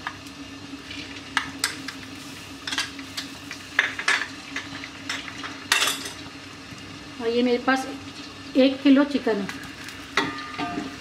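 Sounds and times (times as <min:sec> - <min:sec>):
paste sizzling in oil: 0:00.2 - 0:06.6.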